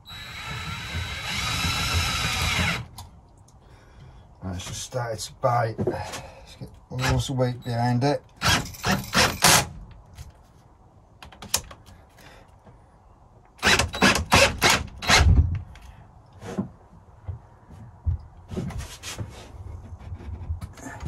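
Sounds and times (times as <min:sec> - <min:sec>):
cordless drill driving screw: 0:00.0 - 0:02.9.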